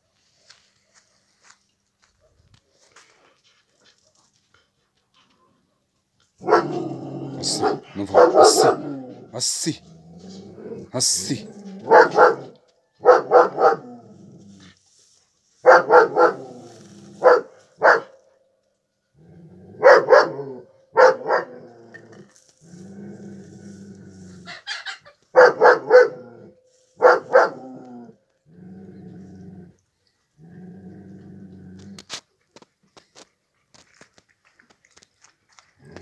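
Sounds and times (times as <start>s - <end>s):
dog barking: 6.4s - 9.1s, 11.8s - 14.1s, 15.6s - 16.6s, 17.2s - 18.2s, 19.8s - 21.7s, 25.3s - 27.8s
dog growling: 6.4s - 12.6s, 13.2s - 14.8s, 15.9s - 17.4s, 21.3s - 24.6s, 27.2s - 29.8s, 30.4s - 32.0s.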